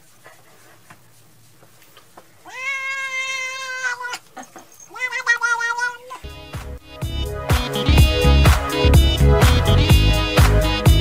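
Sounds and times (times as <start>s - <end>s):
cat meowing: 2.4s - 6.3s
music with a beat: 6.3s - 11.0s.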